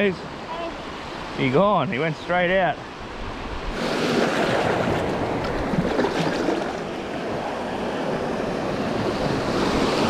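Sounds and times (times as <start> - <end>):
surf breaking on beach: 3.7 - 10.0.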